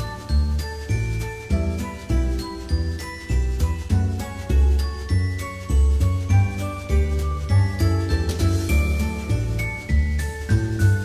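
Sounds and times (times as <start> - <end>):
bell-like high notes: 0.0 - 11.0
low bass notes: 0.0 - 11.0.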